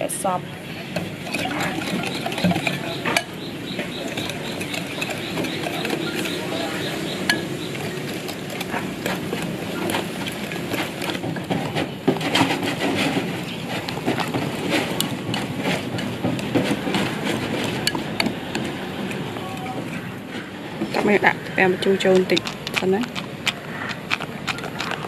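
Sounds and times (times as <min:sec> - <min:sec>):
whisk clicking against a bowl: 0:01.0 - 0:11.3.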